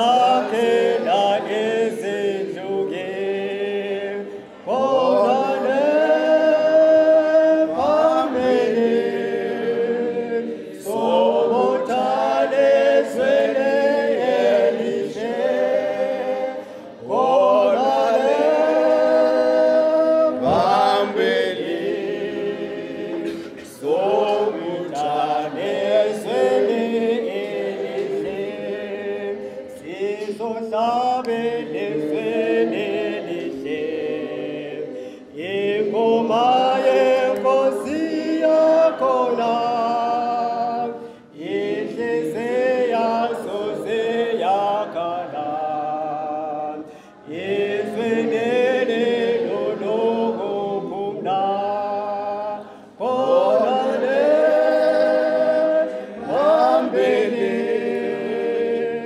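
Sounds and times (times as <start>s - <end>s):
group singing in harmony: 0.0s - 59.0s.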